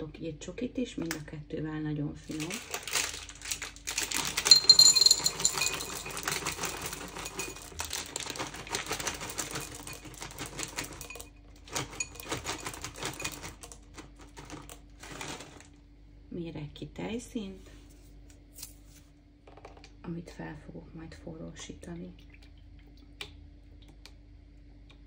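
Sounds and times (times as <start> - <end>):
chocolate drops rattling into cup: 2.2 - 15.7.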